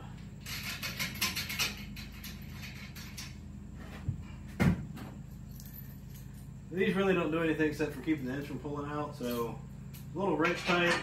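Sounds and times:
metallic clicks and rattles of bolts: 0:00.4 - 0:03.4.

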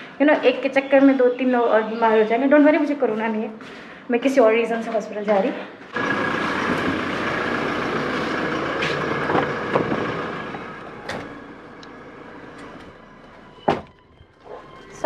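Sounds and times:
car idling: 0:05.9 - 0:13.6.

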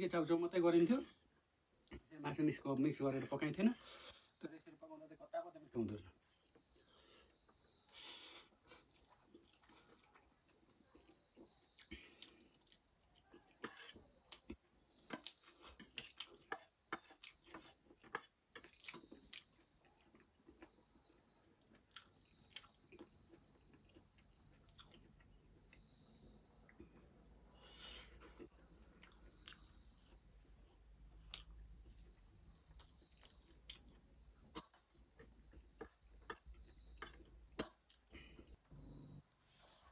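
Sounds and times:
steady high hiss: 0:00.0 - 0:10.1.

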